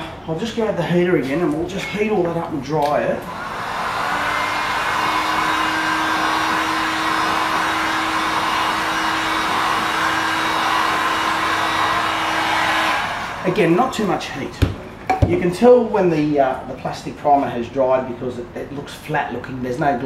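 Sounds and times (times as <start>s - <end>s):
heat gun blowing hot air: 3.2s - 13.6s.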